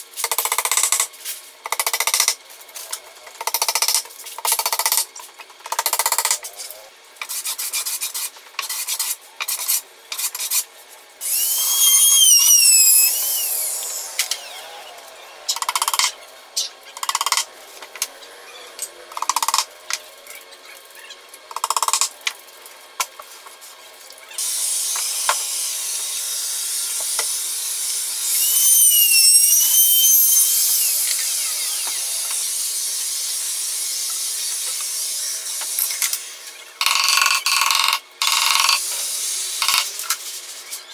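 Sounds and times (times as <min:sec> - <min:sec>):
rubbing and scraping strokes: 0:07.2 - 0:11.0.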